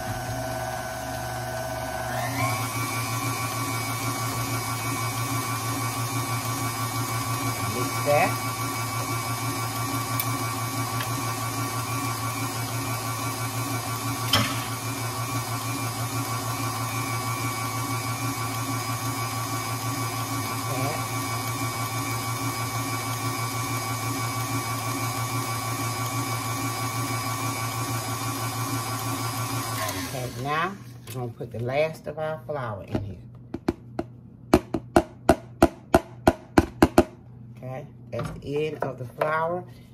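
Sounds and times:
stand mixer whisking batter: 0.0s - 30.9s.

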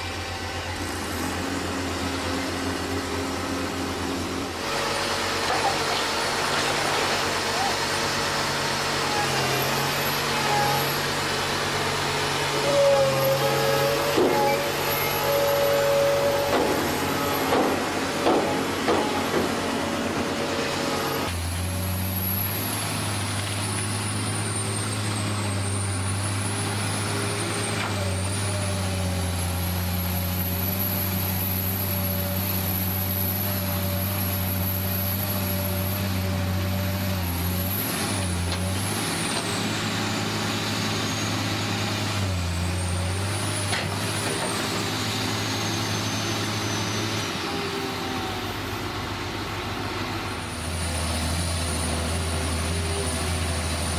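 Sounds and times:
diesel excavators running: 0.0s - 53.9s
knocks and clanks: 16.4s - 19.8s.

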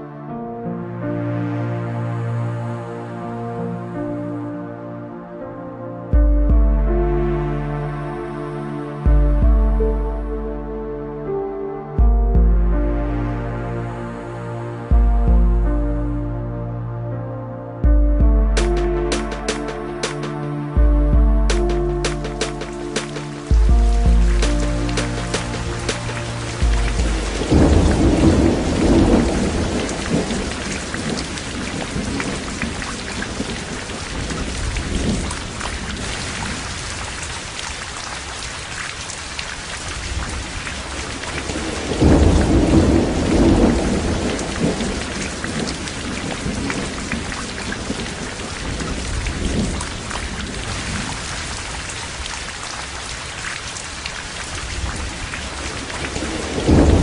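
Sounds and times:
heavy rain: 18.6s - 57.0s
rolls of thunder: 27.0s - 36.6s, 41.4s - 51.2s, 54.8s - 57.0s.

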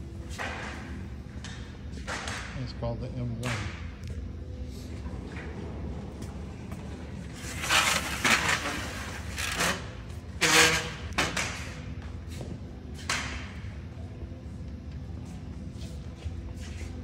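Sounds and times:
steady low hum: 0.0s - 17.0s
metal frame scraping and rustling: 7.2s - 11.2s.

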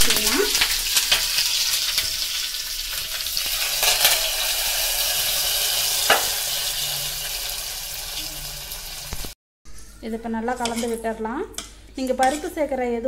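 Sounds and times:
spices sizzling in hot oil: 0.0s - 9.4s.

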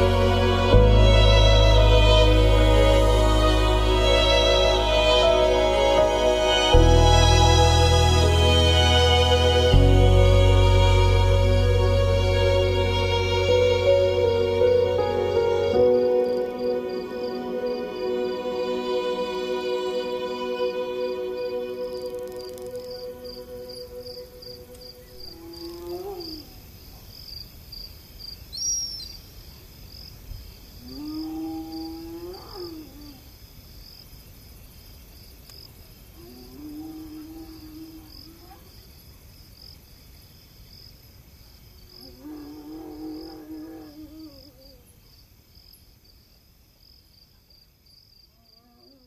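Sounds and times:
insects chorus: 0.0s - 49.0s
long drawn-out animal calls: 13.8s - 26.7s, 30.8s - 33.4s, 36.2s - 38.9s, 42.0s - 45.0s, 48.3s - 49.0s.

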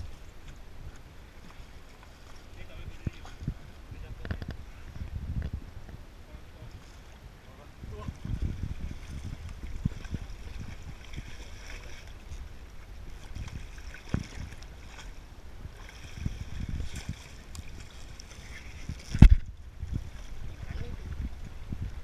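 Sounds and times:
water splashing against boat hull: 7.9s - 21.5s.

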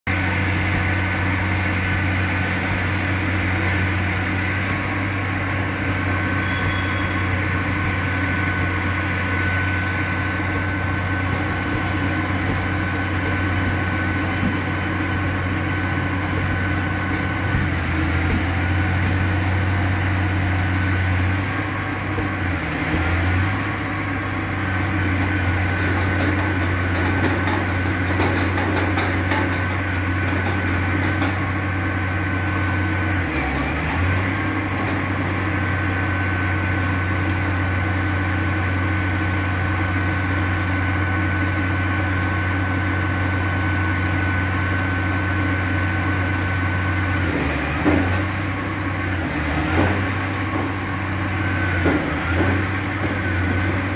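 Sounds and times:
diesel engine humming: 0.1s - 53.9s.

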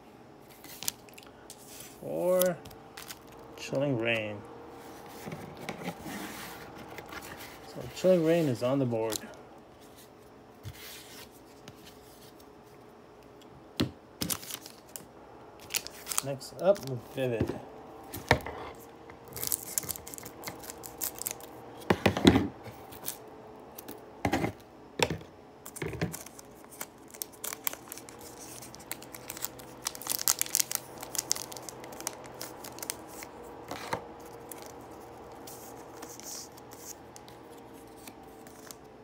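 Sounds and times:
foil wrapper crinkling and tearing: 2.4s - 3.4s, 14.2s - 15.0s, 15.6s - 17.2s, 19.3s - 21.6s, 25.7s - 33.4s, 34.2s - 38.8s.

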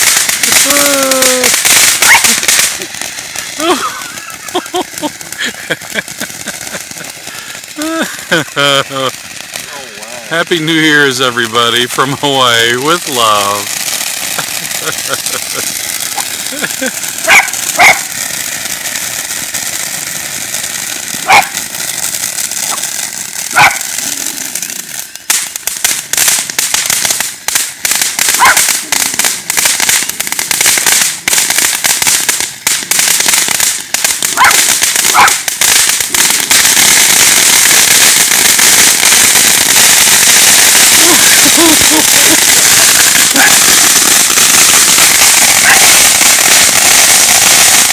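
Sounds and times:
firework crackling and popping: 0.0s - 47.9s
hiss of spraying sparks: 0.0s - 47.9s
dog barking: 2.0s - 2.4s, 17.2s - 18.1s, 21.2s - 21.6s, 23.5s - 23.8s, 28.4s - 28.7s, 34.3s - 35.4s, 45.6s - 45.9s.

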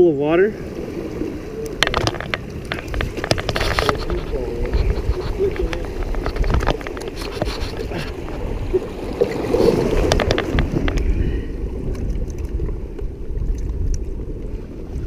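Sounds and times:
wind rumbling on microphone: 0.5s - 15.0s
scuffs and rustles on rocks: 1.9s - 11.1s.

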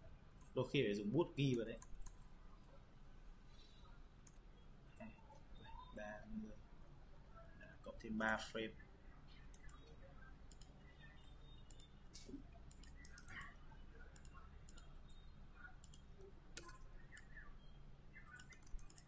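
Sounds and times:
computer mouse clicks: 1.4s - 2.7s, 4.2s - 5.3s, 9.5s - 17.4s, 18.2s - 19.0s.

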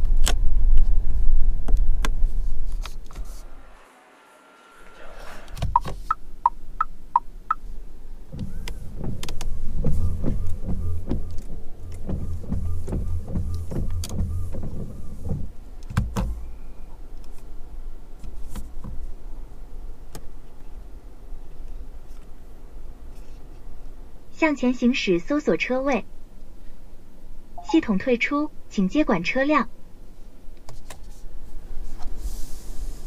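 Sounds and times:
wiper motor knocking: 8.3s - 16.4s
loud clunk: 8.3s - 16.5s
electronic chime tones: 27.6s - 27.8s.

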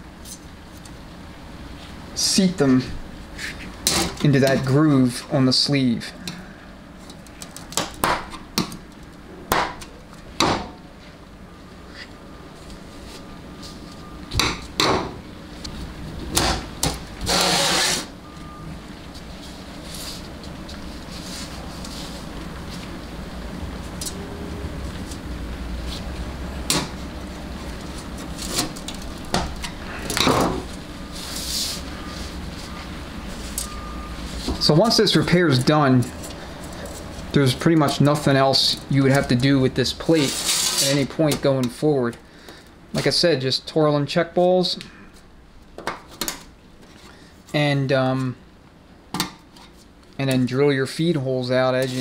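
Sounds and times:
screwdriver scrape on metal: 17.3s - 18.1s.

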